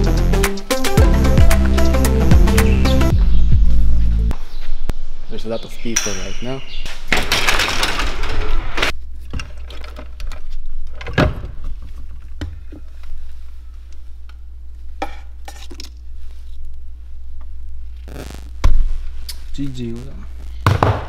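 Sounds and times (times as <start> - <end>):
steady low hum: 12.1 - 21.0.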